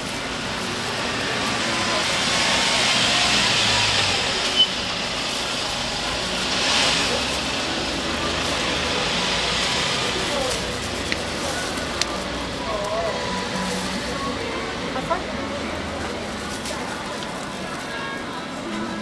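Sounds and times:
egg and cheese sizzling on griddle: 0.0 - 13.6.

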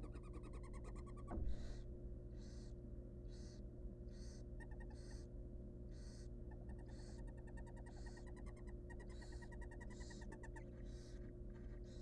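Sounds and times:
steady low hum: 0.0 - 12.0
owl nestlings hissing calls: 2.4 - 5.3, 5.9 - 11.3.

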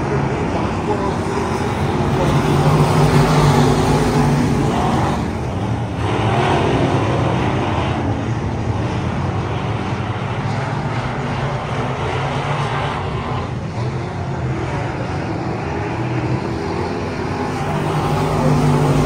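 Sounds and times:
race car engine: 0.0 - 19.0.

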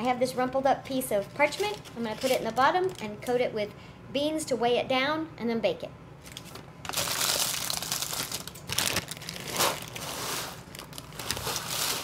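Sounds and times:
paper and plastic bag crinkling: 1.4 - 3.1, 6.3 - 12.0.

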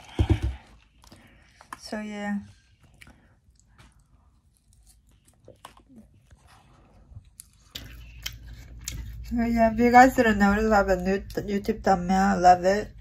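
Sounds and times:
low steady hum: 0.0 - 13.0
chewing salad: 2.7 - 9.8.

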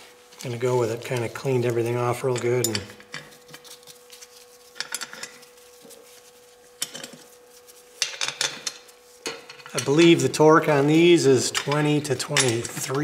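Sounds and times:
metal parts clinking: 11.5 - 13.0.

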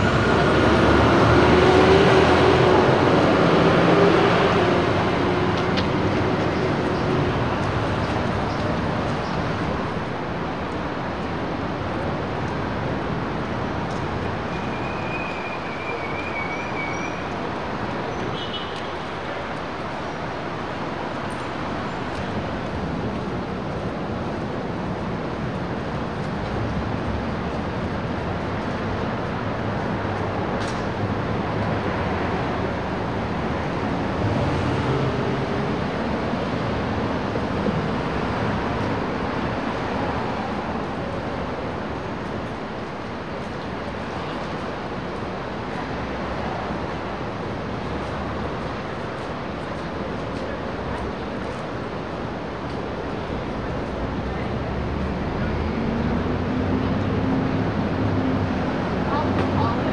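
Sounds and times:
city street traffic rumble: 0.0 - 59.9
passing cars and buses: 0.0 - 59.9.

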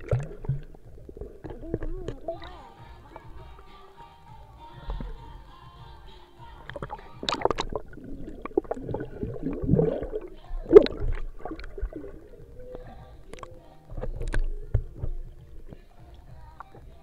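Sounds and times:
water gurgling underwater: 0.0 - 2.5, 6.6 - 16.3.

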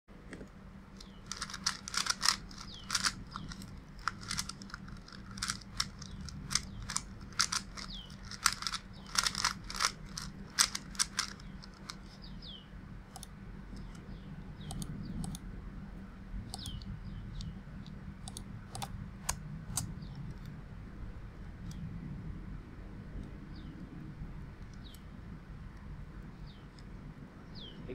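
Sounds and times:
puzzle cube plastic clacks: 1.0 - 12.0.

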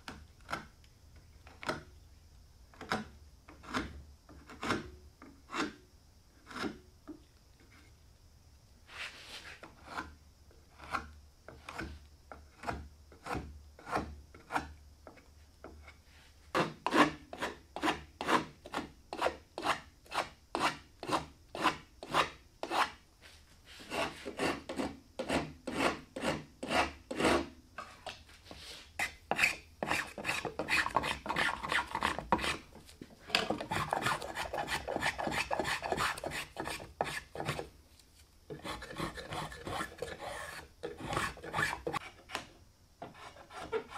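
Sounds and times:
edge tools shaving wood: 29.0 - 32.6, 33.3 - 37.7, 38.5 - 42.1.

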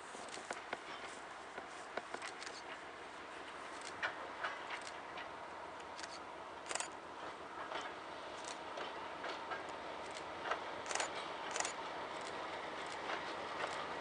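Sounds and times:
camera shutters clicking: 2.2 - 2.6, 5.9 - 6.9, 10.9 - 11.8.

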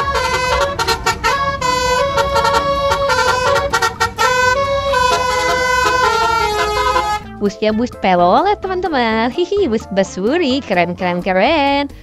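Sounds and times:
bus musical horn playing: 0.0 - 9.3
traffic rumble: 0.0 - 11.2.

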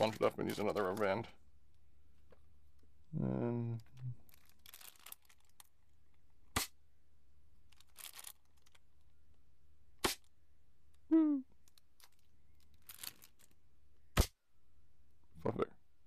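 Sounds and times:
plastic bag rustling: 4.2 - 5.8, 7.7 - 8.8, 11.7 - 13.6.

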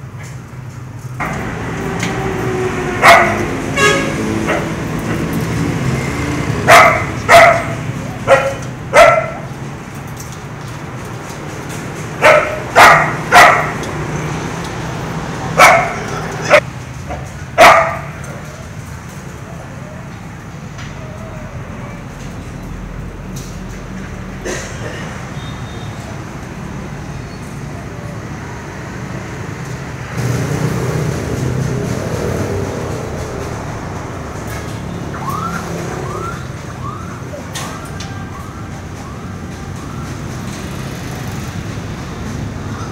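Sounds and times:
dog barking: 3.0 - 3.5, 4.4 - 4.8, 6.6 - 9.5, 12.2 - 13.8, 15.6 - 16.6, 17.6 - 18.2.

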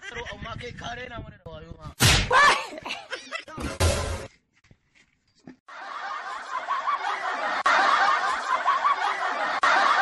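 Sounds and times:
canned laughter: 5.7 - 10.0.

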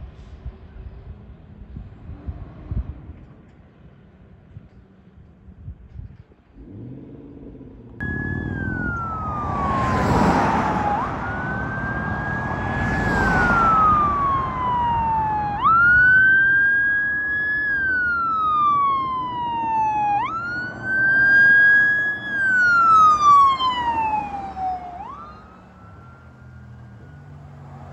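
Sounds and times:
loud rushes of noise: 8.0 - 19.8
ambulance siren wailing: 8.0 - 27.9.

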